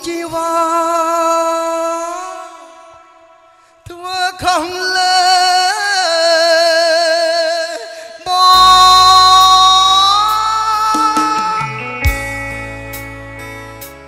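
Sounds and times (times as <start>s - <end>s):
man singing long note: 3.9s - 12.0s
deep bass: 10.1s - 14.0s.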